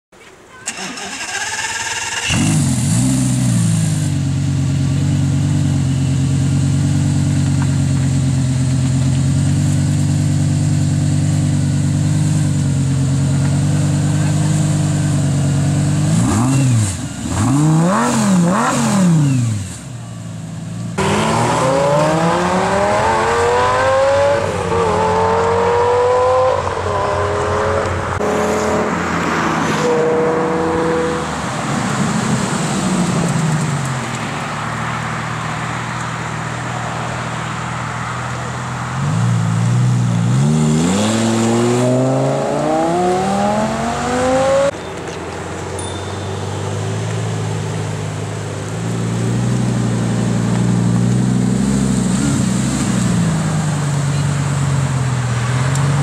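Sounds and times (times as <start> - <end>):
sports car engine revving: 2.2 - 19.9, 20.8 - 34.2, 35.3 - 44.8
car accelerating through gears: 21.0 - 33.6, 39.0 - 44.8.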